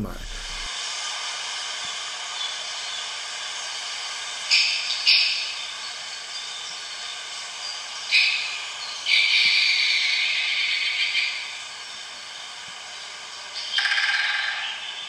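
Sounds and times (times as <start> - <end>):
steady background hiss: 0.0 - 0.7.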